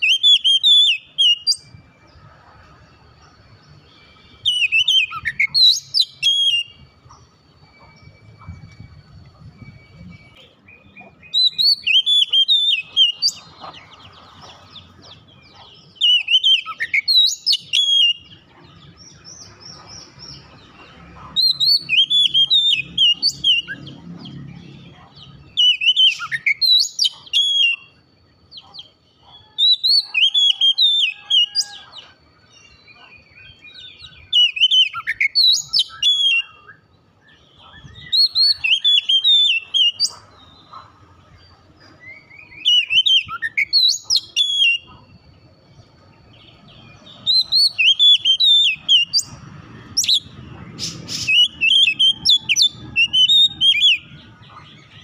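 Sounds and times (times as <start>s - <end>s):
bird singing whistled phrases: 0.0s - 1.7s, 4.0s - 9.0s, 9.6s - 13.5s, 15.4s - 19.6s, 21.4s - 28.0s, 28.7s - 32.0s, 32.9s - 40.7s, 42.1s - 45.0s, 46.6s - 49.4s, 50.0s - 54.2s.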